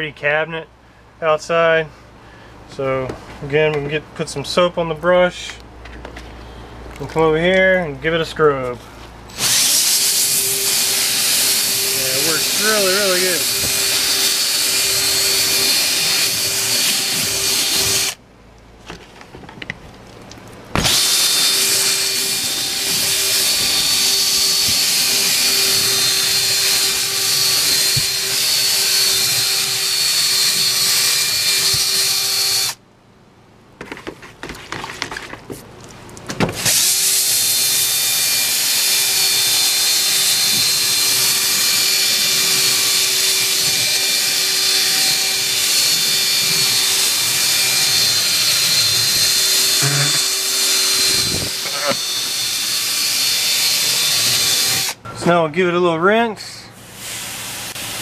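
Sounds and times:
cordless drill motor whine: 9.3s - 18.2s, 20.8s - 32.8s, 36.6s - 55.0s.

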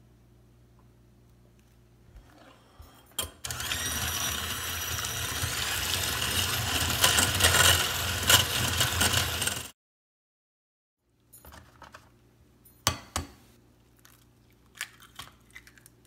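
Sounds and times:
hand mixer motor whine: 3.4s - 9.7s.

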